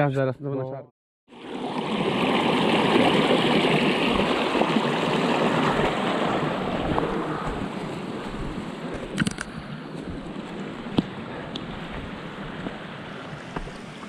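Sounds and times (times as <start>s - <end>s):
small clicks: 9.2s - 9.6s.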